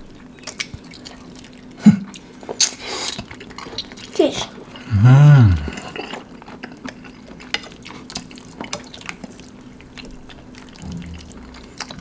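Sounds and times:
slurping and chewing noodles: 0:00.0 - 0:12.0
person humming: 0:04.8 - 0:05.9.

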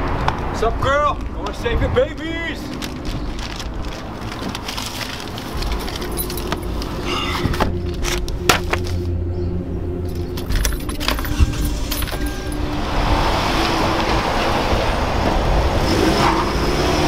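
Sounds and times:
keys jangling: 0:05.4 - 0:07.0, 0:10.0 - 0:12.8.

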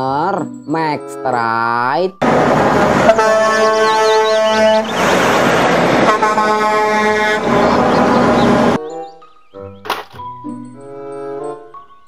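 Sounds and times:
truck and road noise: 0:02.1 - 0:12.0
truck air horn blasts: 0:02.2 - 0:08.8.

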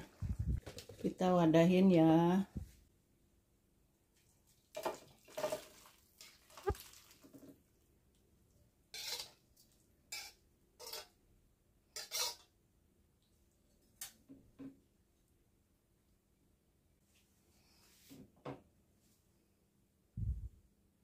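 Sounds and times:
metal spatula scraping a wok: 0:08.9 - 0:09.4, 0:10.1 - 0:11.2, 0:11.9 - 0:12.5.

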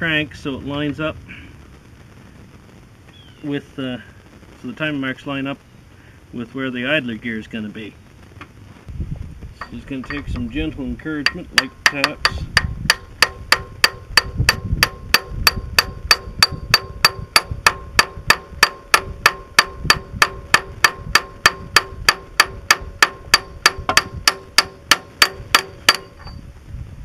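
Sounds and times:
hammer tapping metal drift: 0:09.6 - 0:26.4.

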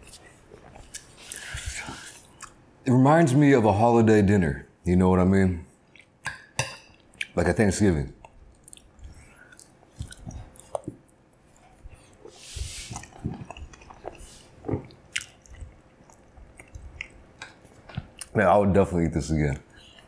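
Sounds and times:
close chewing with mouth clicks: 0:00.0 - 0:02.6, 0:08.2 - 0:18.4.

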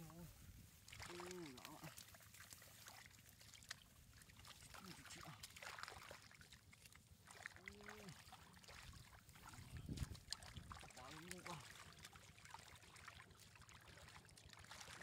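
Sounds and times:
splashing in muddy water: 0:00.0 - 0:15.0.

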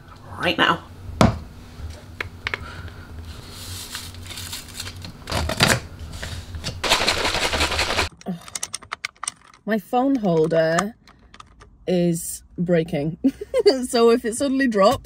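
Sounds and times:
shaker cup shaken hard: 0:06.8 - 0:08.1.

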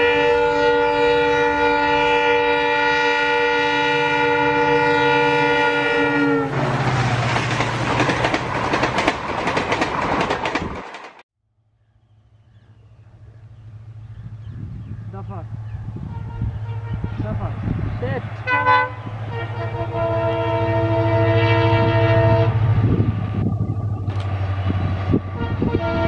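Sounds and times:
locomotive horn chord: 0:00.0 - 0:06.8, 0:15.9 - 0:17.7, 0:18.4 - 0:23.0, 0:25.2 - 0:26.0
locomotive engine rumble: 0:04.0 - 0:11.2, 0:12.2 - 0:26.0
dense clattering noise: 0:06.6 - 0:11.2.

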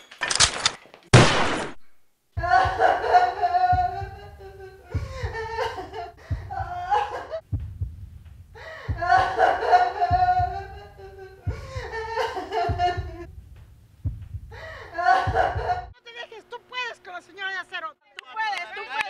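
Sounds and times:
pistol shot: 0:01.1 - 0:01.9
slow low thumps: 0:02.2 - 0:16.0.

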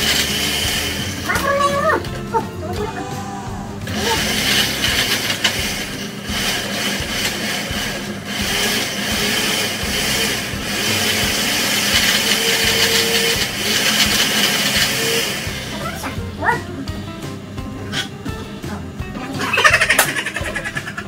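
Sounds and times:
blender running: 0:00.0 - 0:21.0.

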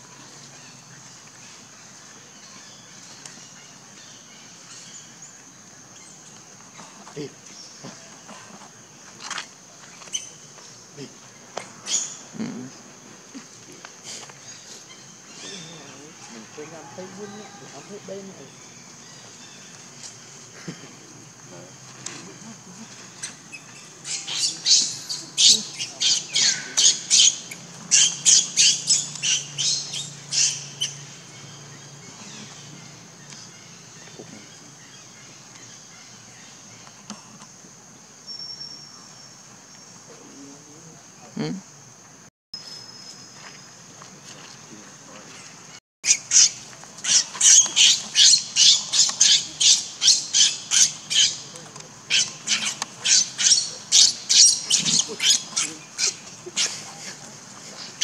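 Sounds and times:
infant monkey screaming: 0:52.1 - 0:57.1.

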